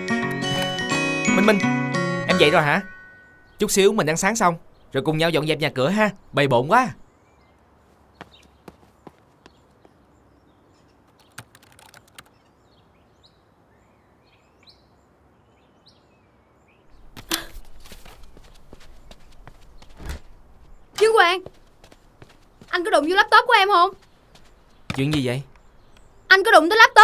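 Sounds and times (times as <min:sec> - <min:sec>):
knocks and shuffling: 0:07.8 - 0:10.0, 0:16.9 - 0:26.4.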